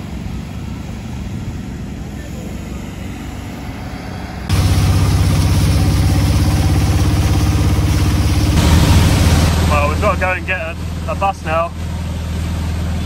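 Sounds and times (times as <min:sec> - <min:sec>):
auto-rickshaw engine running: 0:00.0 - 0:13.0
steady rushing hiss: 0:04.5 - 0:11.5.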